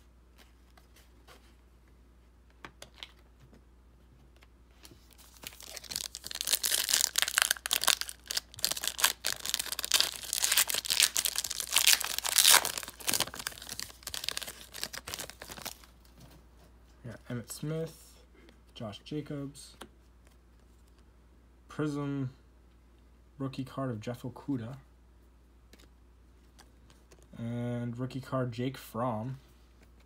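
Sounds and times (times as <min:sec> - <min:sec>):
wrapper tearing and crinkling: 0:05.1 - 0:15.9.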